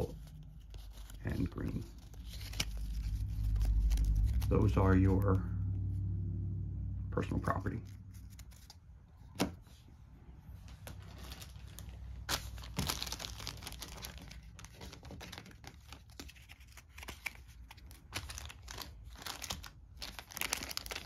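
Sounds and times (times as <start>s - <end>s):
plastic bag crinkling: 10.8s - 21.0s.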